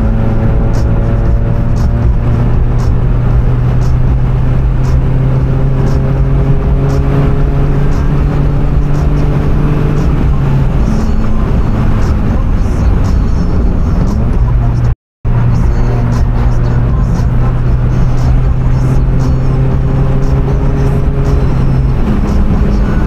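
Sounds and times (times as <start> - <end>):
car engine accelerating: 0.0 - 23.0
road and tyre noise: 0.0 - 23.0.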